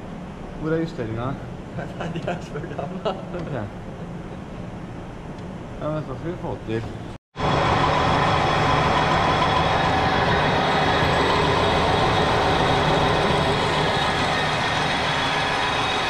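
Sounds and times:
metal lathe running: 7.4 - 16.0.

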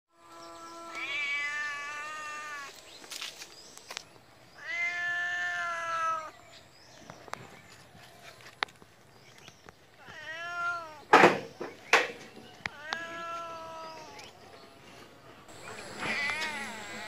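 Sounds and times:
cat meowing: 0.6 - 2.7, 4.6 - 6.4, 10.0 - 11.1, 12.6 - 14.3, 15.9 - 17.0.

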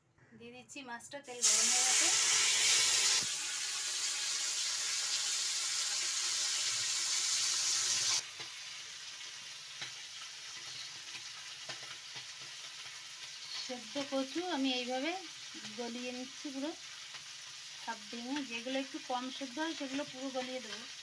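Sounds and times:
fish sizzling in hot oil: 1.3 - 21.0.

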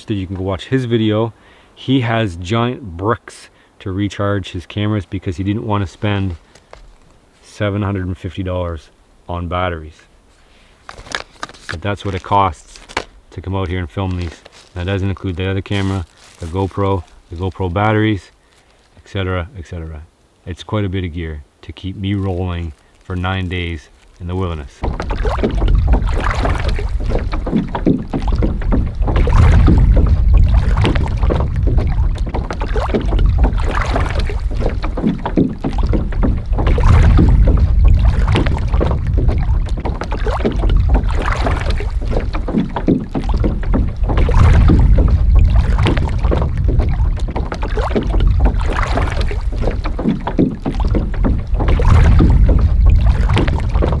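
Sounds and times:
small waves lapping against canoe: 0.0 - 9.3, 10.0 - 54.0
wind buffeting microphone: 24.7 - 54.0.

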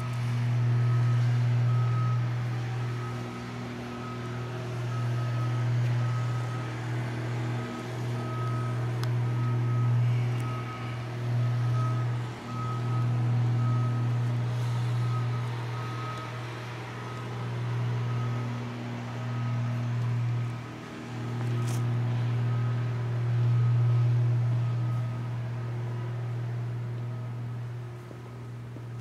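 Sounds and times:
faint high beep: 0.0 - 6.7
low machine hum: 0.0 - 29.0.

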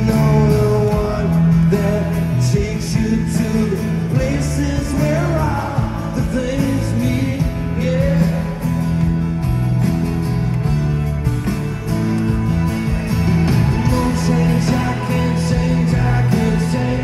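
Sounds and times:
person singing: 0.0 - 8.8, 13.8 - 17.0
rock band playing live: 0.0 - 17.0.

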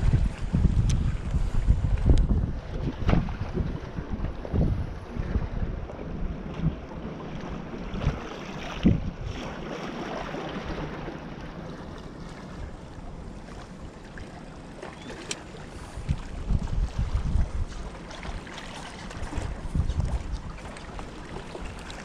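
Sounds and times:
wind buffeting microphone: 0.0 - 9.5, 15.0 - 22.0.

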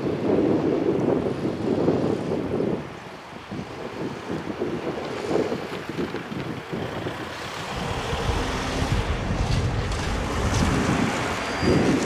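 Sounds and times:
wind buffeting the microphone: 0.0 - 12.0
car approaching on road: 5.7 - 12.0.

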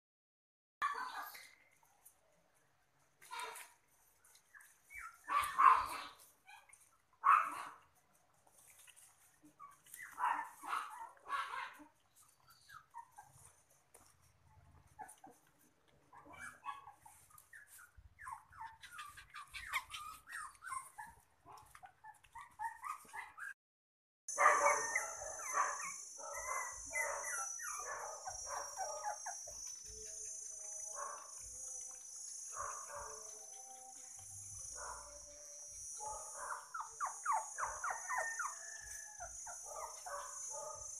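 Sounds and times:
puppies whimpering: 4.5 - 6.1, 9.0 - 10.7, 11.7 - 13.7, 14.8 - 23.6, 24.4 - 40.8
puppies chewing and lapping: 7.8 - 17.9, 18.8 - 23.0, 28.3 - 34.7.

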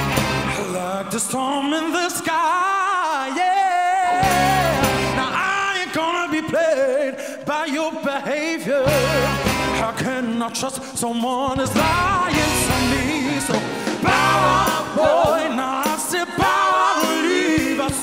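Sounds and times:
live band playing: 0.0 - 1.0, 4.1 - 5.6, 8.8 - 10.2, 11.1 - 18.0
man singing with heavy vibrato: 0.5 - 18.0.

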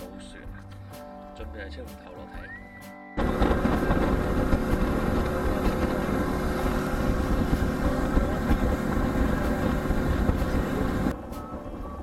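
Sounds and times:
boat engine running: 3.2 - 12.0
water noise: 3.2 - 12.0
wind: 3.2 - 12.0.

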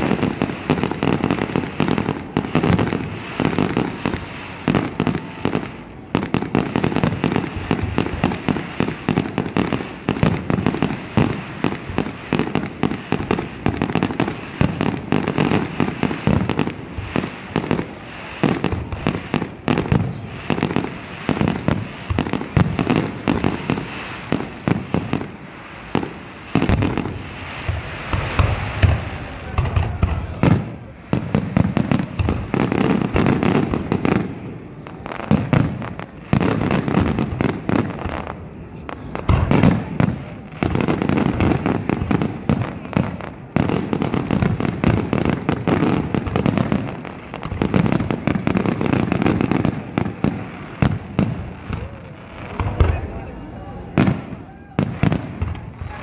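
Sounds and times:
fireworks bursting: 0.0 - 56.0.

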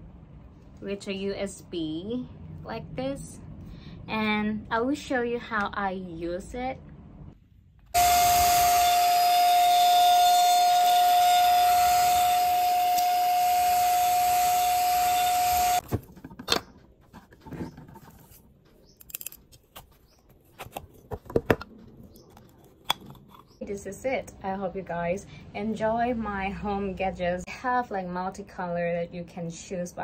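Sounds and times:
handheld vacuum cleaner whining: 8.0 - 15.8.

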